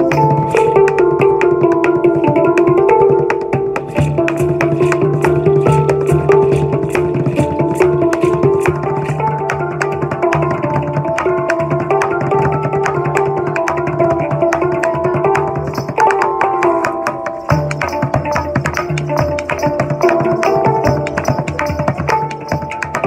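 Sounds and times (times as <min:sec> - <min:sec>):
drumsticks beating plastic bucket: 0:00.0 - 0:23.0
handpan notes ringing: 0:00.0 - 0:23.0.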